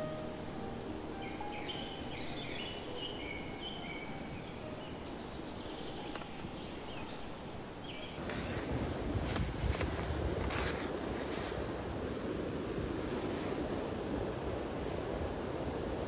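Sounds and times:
small birds chirping: 0:00.0 - 0:08.7
outdoor background hiss: 0:00.0 - 0:16.0
wind on microphone: 0:00.0 - 0:16.0.

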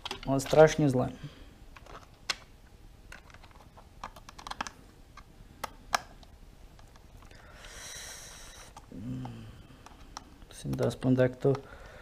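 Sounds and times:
long breathy exhale: 0:07.3 - 0:08.7.

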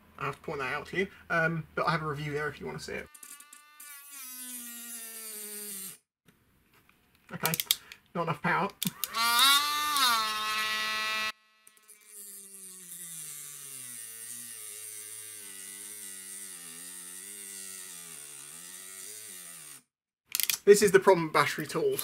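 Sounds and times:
rotary tool cut-off disc whining: 0:03.1 - 0:06.0, 0:08.9 - 0:19.9.

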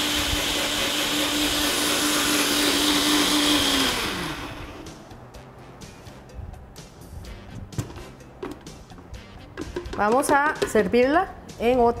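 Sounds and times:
blender grinding: 0:00.0 - 0:05.0
blender motor winding down: 0:00.0 - 0:05.0.

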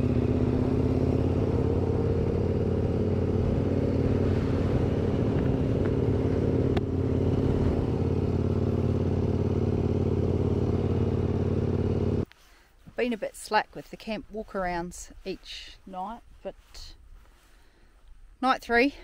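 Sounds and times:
motorcycle engine running: 0:00.0 - 0:12.3.

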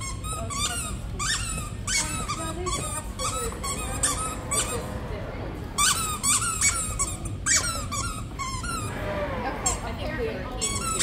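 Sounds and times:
squeaky dog toy squeaking: 0:00.0 - 0:04.7, 0:05.8 - 0:08.9, 0:10.6 - 0:11.0
dog chewing toy: 0:00.0 - 0:11.0.

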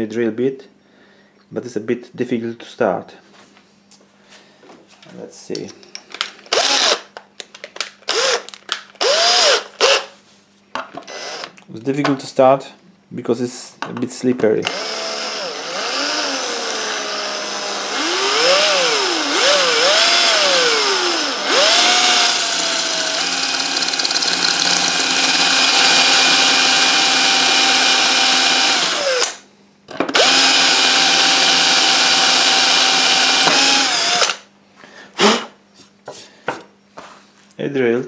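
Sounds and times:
electric drill grinding through tile: 0:06.5 - 0:07.1, 0:08.1 - 0:10.1, 0:11.0 - 0:11.6, 0:14.6 - 0:29.4, 0:30.1 - 0:34.4.

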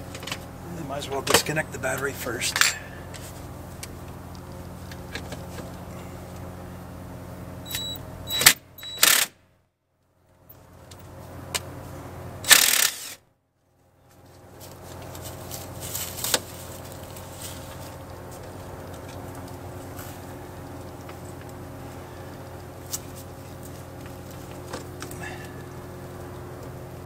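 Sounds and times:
steady low hum: 0:00.0 - 0:27.0
impact driver whirring: 0:07.7 - 0:09.4, 0:12.4 - 0:13.2.

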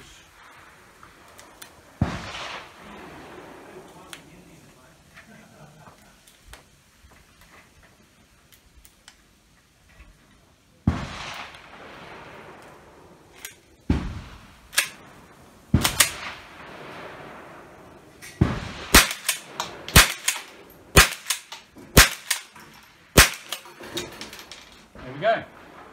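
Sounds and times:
rifle shots cracking: 0:02.0 - 0:03.5, 0:10.9 - 0:12.6, 0:13.3 - 0:25.0
rifle action clacking: 0:19.0 - 0:24.6.

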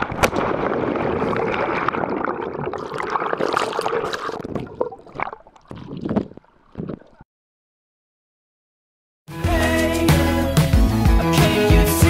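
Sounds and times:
water splashing and churning: 0:00.0 - 0:07.2.

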